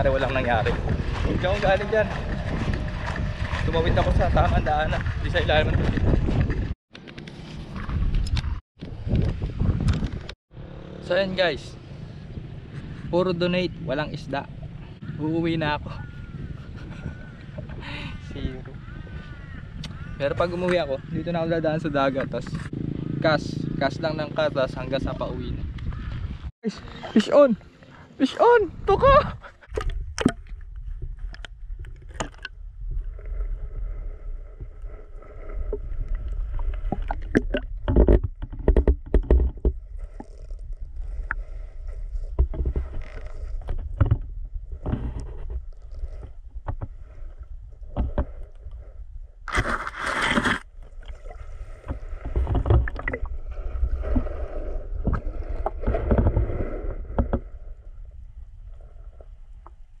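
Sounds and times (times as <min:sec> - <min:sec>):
muffled underwater water sloshing: 0:32.0 - 1:00.0.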